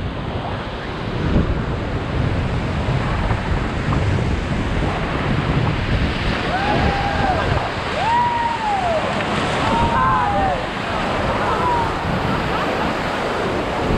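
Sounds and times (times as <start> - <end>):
whitewater rushing: 0.0 - 13.9
wind rumbling on microphone: 0.0 - 13.9.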